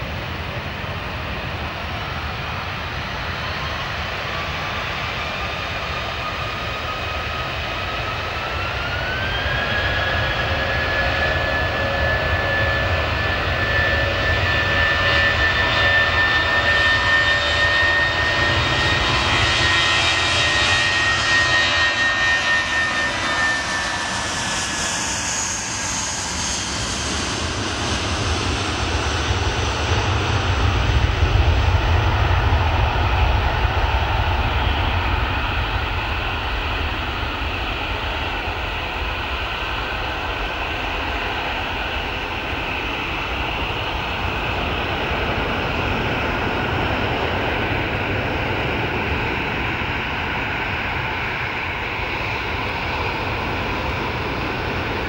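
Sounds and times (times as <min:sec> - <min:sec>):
deep rumble of landing jet: 0:00.0 - 0:55.0
jet engines spooling up: 0:00.0 - 0:55.0.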